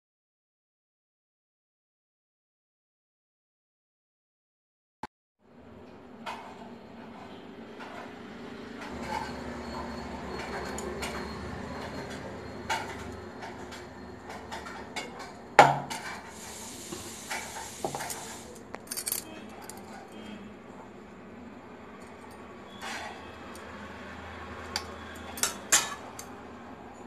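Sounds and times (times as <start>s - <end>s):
metal bowls clinking: 24.6s - 26.3s.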